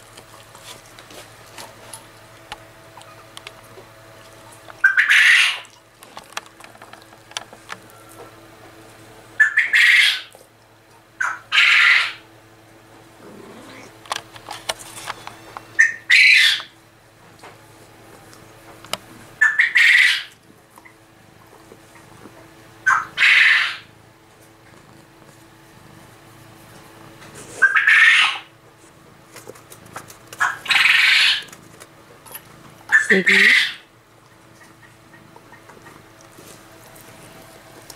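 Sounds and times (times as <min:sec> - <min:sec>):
quail calling: 0:04.8 - 0:05.7, 0:09.4 - 0:10.3, 0:11.2 - 0:12.2, 0:15.8 - 0:16.7, 0:19.4 - 0:21.0, 0:22.8 - 0:23.9, 0:27.6 - 0:28.5, 0:30.4 - 0:31.5, 0:32.9 - 0:33.9
small clicks and rustles: 0:05.7 - 0:08.3, 0:14.0 - 0:15.7.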